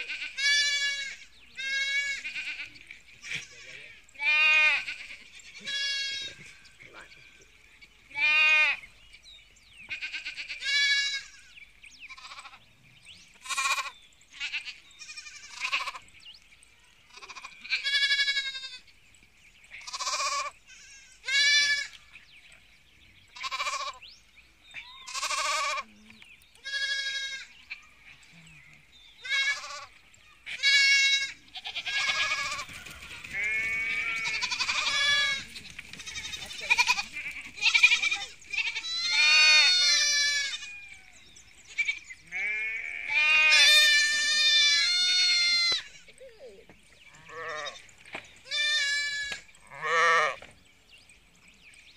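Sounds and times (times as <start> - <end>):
sheep bleating: 0.0 - 6.6, 8.1 - 8.9, 9.9 - 12.6, 13.4 - 16.0, 17.1 - 18.8, 19.7 - 22.0, 23.4 - 24.0, 24.8 - 26.0, 26.6 - 27.9, 29.2 - 41.1, 41.7 - 46.2, 47.1 - 47.8, 48.5 - 50.4.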